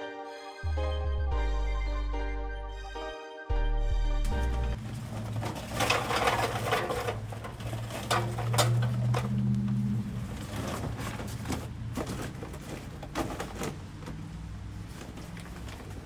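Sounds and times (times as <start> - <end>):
paper bag rustling: 4.4 - 9.3, 10.0 - 16.0
charcoal clattering into a grill: 4.8 - 9.5.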